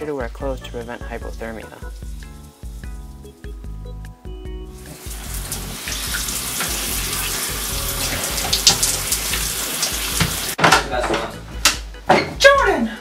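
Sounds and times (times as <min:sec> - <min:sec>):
background music with bass line: 0:00.0 - 0:13.0
shower water spraying: 0:01.5 - 0:03.4, 0:04.7 - 0:10.6.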